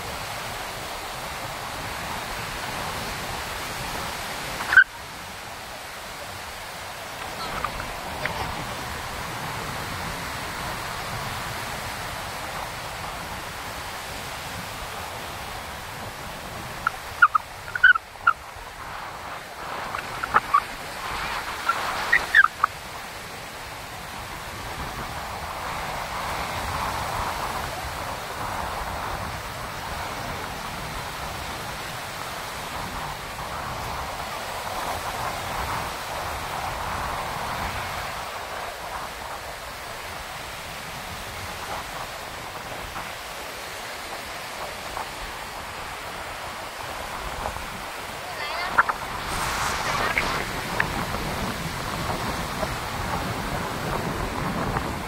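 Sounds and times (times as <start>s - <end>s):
sea surf on beach: 0.0s - 55.0s
wind: 0.0s - 55.0s.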